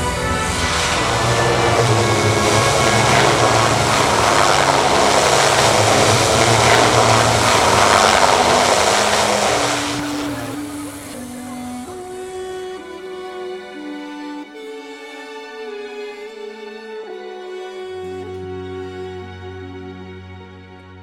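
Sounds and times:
propeller aircraft engine: 0:00.0 - 0:11.9
background music: 0:00.0 - 0:21.0.

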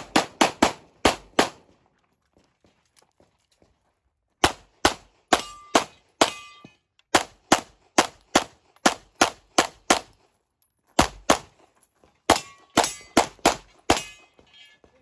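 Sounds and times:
pistol firing rapid shots: 0:00.0 - 0:01.6, 0:04.4 - 0:06.3, 0:07.1 - 0:10.1, 0:11.0 - 0:11.5, 0:12.3 - 0:14.1
short metallic ring: 0:05.4 - 0:06.8, 0:13.9 - 0:14.9.

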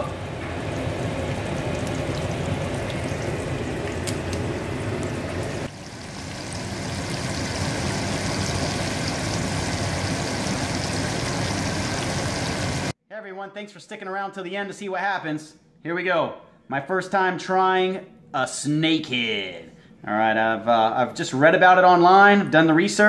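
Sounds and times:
fish fillets sizzling in hot oil: 0:05.4 - 0:12.9.

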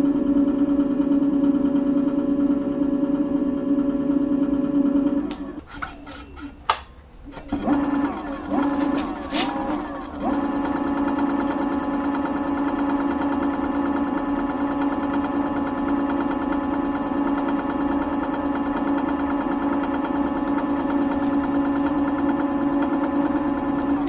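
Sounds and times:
electric motor whine: 0:07.6 - 0:24.0.

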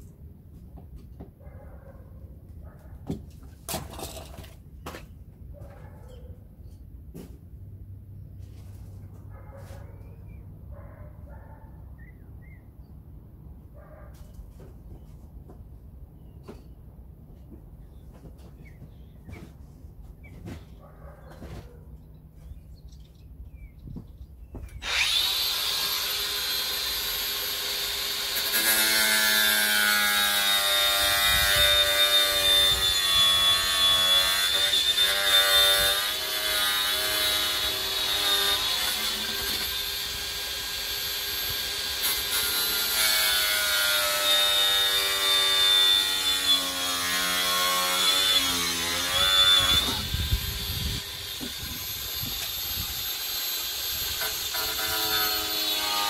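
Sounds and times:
angle grinder cutting: 0:24.8 - 0:56.0.

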